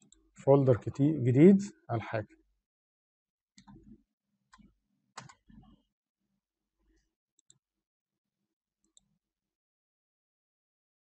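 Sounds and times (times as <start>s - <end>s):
computer mouse clicks: 3.6s - 5.8s, 7.4s - 7.6s.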